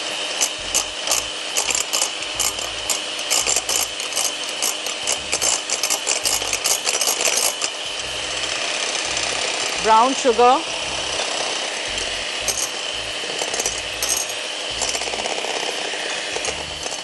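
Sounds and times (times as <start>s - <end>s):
electric hand mixer whine: 0.0s - 17.0s
metal beaters clicking on glass: 0.7s - 7.6s.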